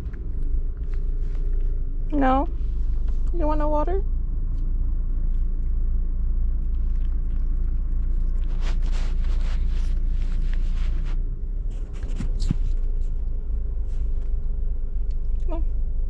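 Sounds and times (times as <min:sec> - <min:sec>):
car rumble: 0:00.0 - 0:16.0
puppy lapping water: 0:06.5 - 0:09.2.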